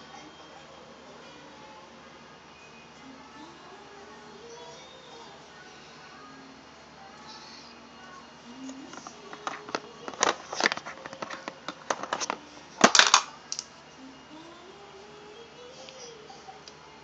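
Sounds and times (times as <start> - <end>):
makeup items clicking and clattering: 8.9 - 13.7.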